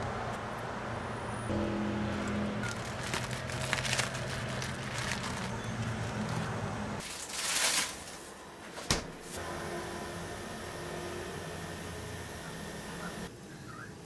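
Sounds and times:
cloth pouch rustling: 2.6s - 8.3s.

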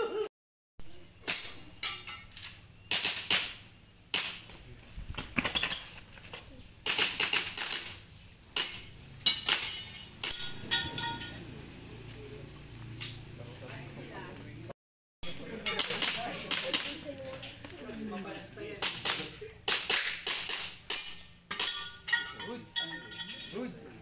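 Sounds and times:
airsoft pistol shots: 2.9s - 4.4s.

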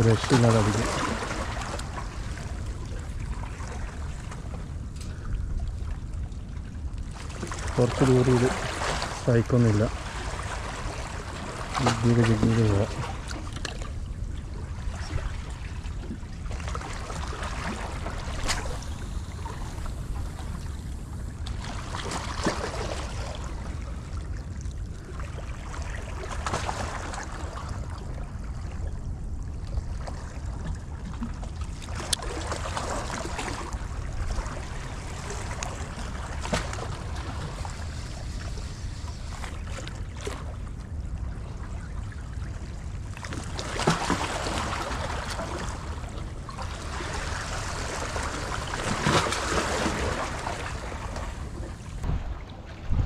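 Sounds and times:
waves washing against rocks: 0.0s - 2.0s, 7.2s - 13.2s, 46.7s - 53.0s
steady low rumble: 0.0s - 22.0s, 50.7s - 53.0s.

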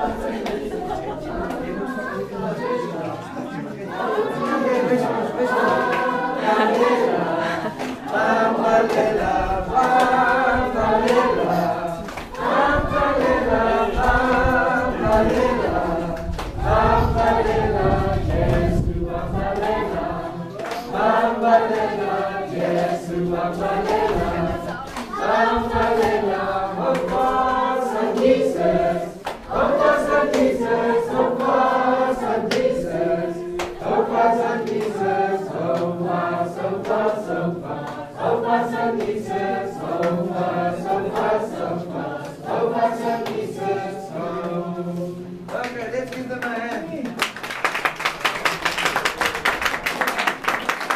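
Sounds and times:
children singing a hymn: 0.0s - 45.5s.

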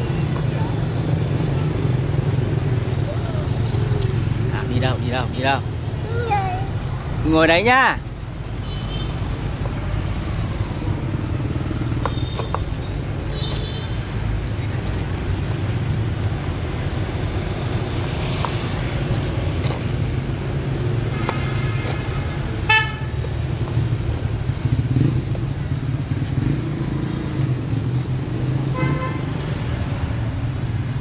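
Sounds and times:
street traffic rumble: 0.0s - 31.0s
vehicle horns beeping: 12.0s - 12.7s, 13.3s - 14.1s, 21.1s - 23.2s, 28.7s - 29.4s.

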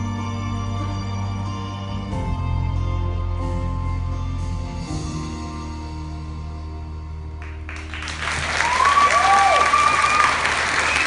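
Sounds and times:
music chord: 0.0s - 8.2s
audience applause: 7.4s - 11.0s
high cheers: 8.0s - 11.0s.

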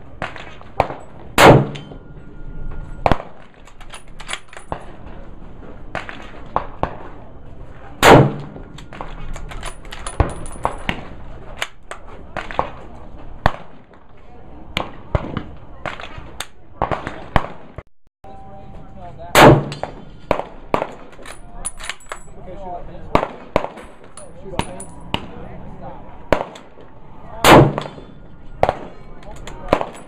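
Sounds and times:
rifle shots with echo: 0.2s - 2.0s, 3.0s - 3.5s, 8.0s - 14.0s, 14.8s - 17.8s, 19.3s - 22.0s, 23.1s - 25.4s, 26.3s - 26.8s, 27.4s - 30.0s.

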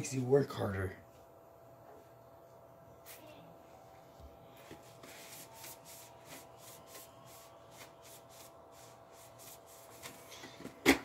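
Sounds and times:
cloth rubbing on helmet: 4.7s - 10.2s.

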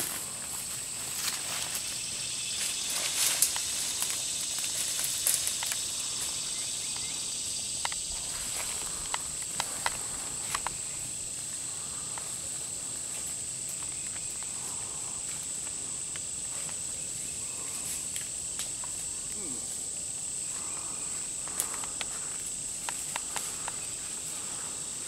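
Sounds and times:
insects chirring: 0.0s - 25.0s
light clicks and rustles: 2.6s - 7.1s, 21.4s - 24.4s.

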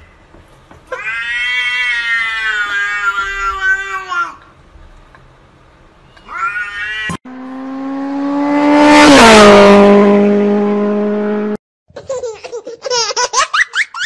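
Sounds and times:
cat meow: 0.9s - 4.3s, 6.2s - 7.2s
passing vehicle drone: 7.3s - 11.6s.

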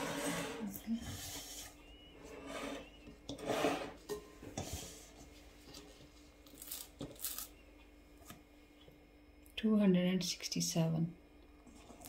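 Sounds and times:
metal bowl scraping: 0.0s - 6.0s
faint steady hum: 0.0s - 12.0s.

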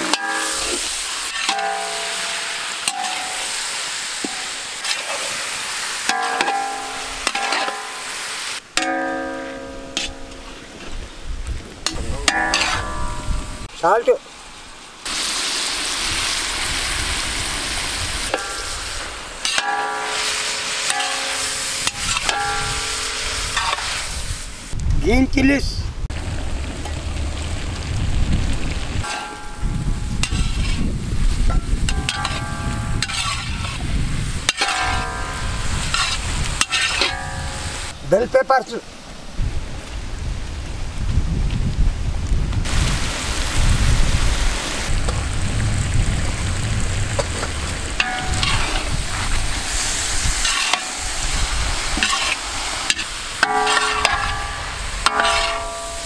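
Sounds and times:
wok ringing: 0.0s - 5.2s, 6.0s - 8.2s, 8.8s - 10.9s, 11.8s - 13.7s, 18.3s - 24.0s, 29.0s - 30.8s, 31.5s - 33.8s, 34.4s - 37.9s, 48.0s - 49.0s, 50.4s - 51.4s, 52.0s - 56.0s
metal spatula scraping a wok: 0.0s - 11.0s, 11.8s - 13.6s, 18.2s - 24.4s, 29.0s - 30.9s, 31.5s - 37.9s, 48.0s - 56.0s
frying sizzle: 0.0s - 24.8s, 26.0s - 38.0s, 39.5s - 56.0s
low rumble: 25.9s - 34.4s, 44.9s - 49.7s
squealing scrape: 33.0s - 33.9s, 35.9s - 37.2s, 52.0s - 54.2s.

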